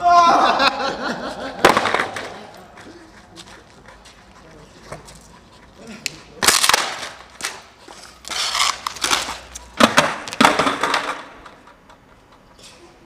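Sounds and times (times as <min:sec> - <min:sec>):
skateboard clacking on stone: 0:08.3 - 0:11.9.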